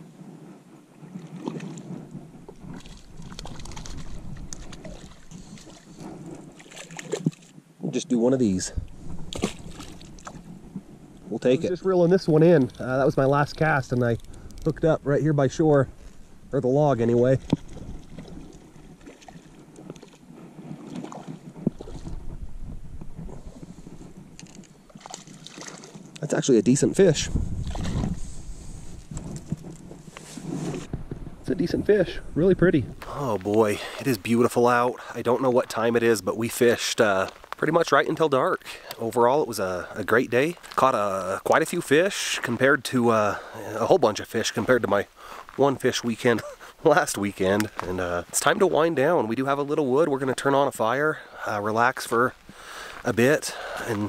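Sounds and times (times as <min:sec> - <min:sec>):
wind rumble on microphone: 0:00.0 - 0:07.8, 0:08.4 - 0:35.0
water sloshing and splashing: 0:01.2 - 0:07.6, 0:09.0 - 0:10.5, 0:17.0 - 0:22.4, 0:24.4 - 0:26.2, 0:27.5 - 0:28.4
fishing gear clicks and scrapes: 0:02.5 - 0:07.4, 0:12.4 - 0:14.8, 0:23.8 - 0:26.1.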